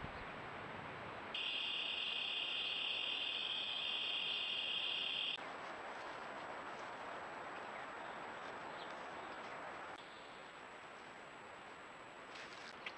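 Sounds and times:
insect trilling: 1.4 - 5.4.

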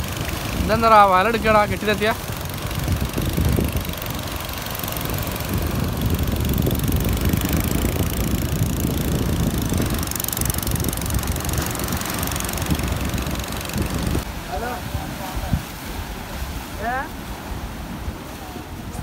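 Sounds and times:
small engine running: 0.0 - 14.2.

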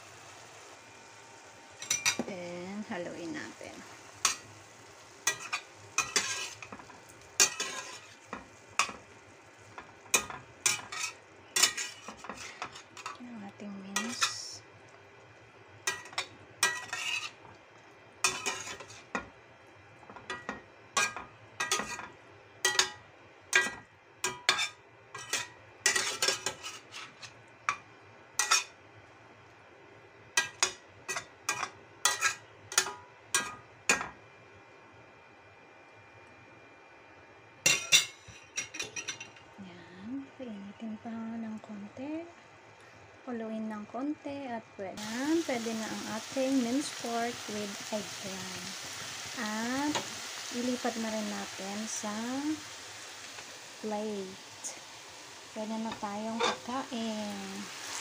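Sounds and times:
spatula clinking and scraping pan: 1.8 - 2.2, 5.2 - 9.0, 9.8 - 13.2, 13.9 - 14.5, 15.8 - 17.4, 18.2 - 19.3, 20.1 - 27.8, 28.4 - 28.7, 30.4 - 34.1, 37.7 - 39.4, 55.9 - 56.7.

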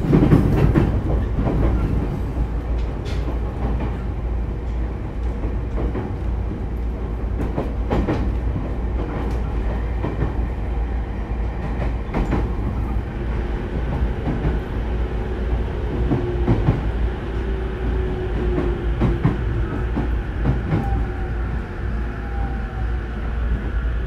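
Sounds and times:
rail-joint clacks: 0.0 - 6.3, 7.3 - 10.4, 11.6 - 13.1, 17.8 - 21.2
train wheels rumbling: 0.0 - 24.0.

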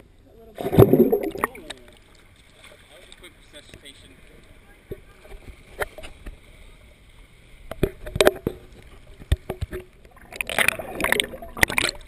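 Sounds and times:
underwater rush: 0.5 - 2.2, 4.1 - 12.0
water sloshing against camera: 0.5 - 12.0.

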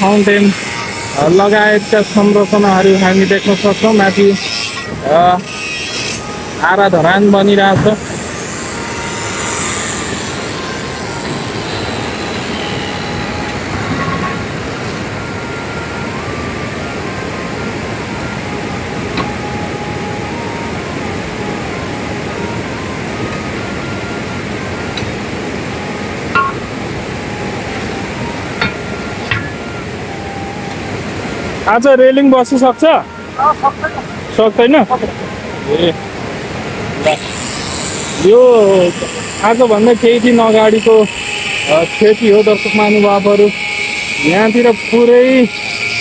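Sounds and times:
river water rushing: 6.2 - 38.4.

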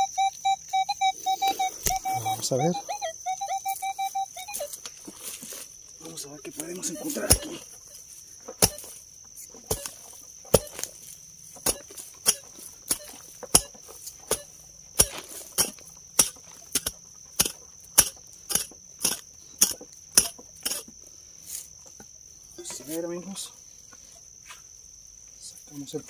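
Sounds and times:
high buzz of insects: 0.0 - 26.0
digging tool striking soil: 6.6 - 7.6, 8.5 - 11.0, 11.6 - 20.9.

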